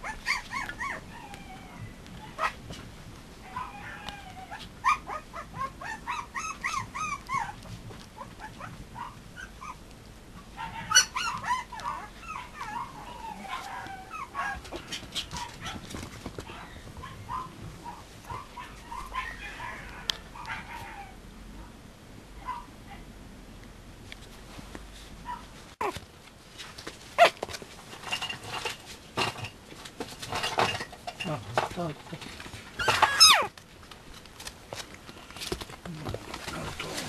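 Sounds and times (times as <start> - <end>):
puppies whimpering and yipping: 0.0 - 2.6, 3.5 - 9.8, 10.6 - 15.8, 32.8 - 33.5.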